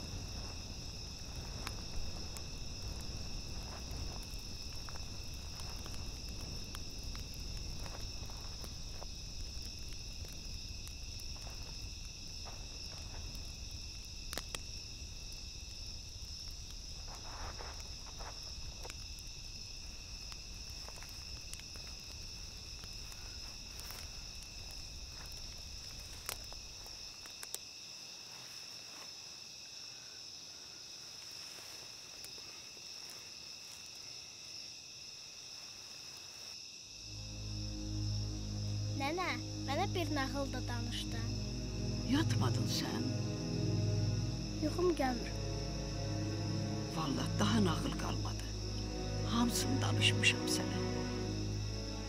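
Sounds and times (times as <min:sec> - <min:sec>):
crickets chirring: 0:00.0 - 0:52.0
low rumble: 0:37.1 - 0:52.0.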